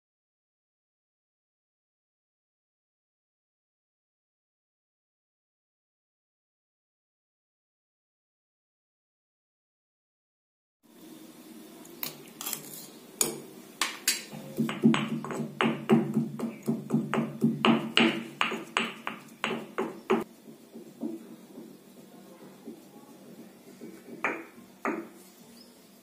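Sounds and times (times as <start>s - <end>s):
pestle pounding in stone mortar: 14.3s - 21.2s.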